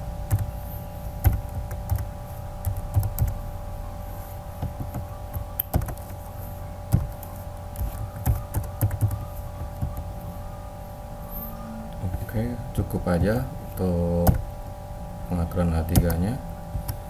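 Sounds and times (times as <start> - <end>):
steady hum: 0.0 - 17.0
keyboard typing clicks: 0.3 - 0.5, 1.2 - 3.4, 4.6 - 6.2, 6.9 - 10.0.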